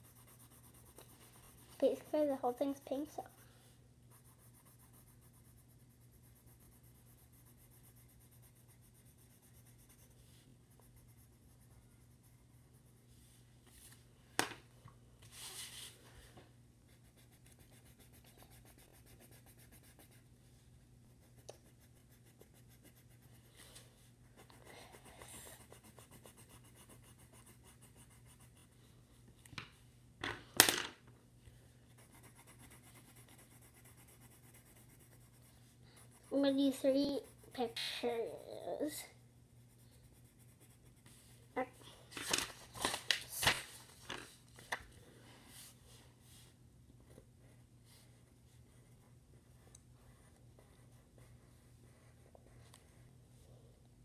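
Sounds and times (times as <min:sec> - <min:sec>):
pencil scratching on paper: 0:00.0 - 0:13.4, 0:16.9 - 0:20.3, 0:21.1 - 0:28.8, 0:31.9 - 0:38.7, 0:39.6 - 0:41.4, 0:47.5 - 0:53.0.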